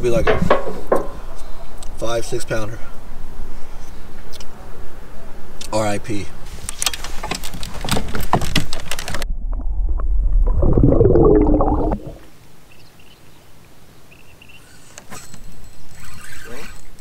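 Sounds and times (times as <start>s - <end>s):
sharp clicks and knocks: 0.1s - 1.5s.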